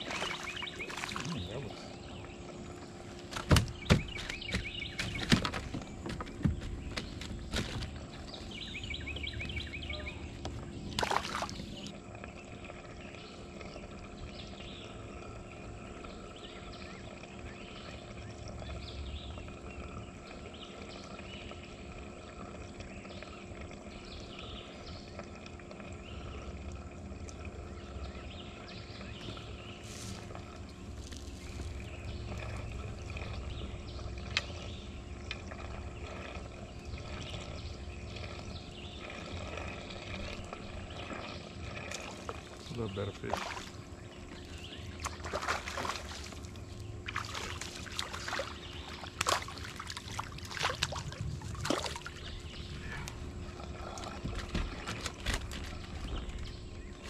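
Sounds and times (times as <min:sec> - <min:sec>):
sharp knocks: 0:03.3 - 0:07.9
wind rumble on microphone: 0:50.6 - 0:57.0.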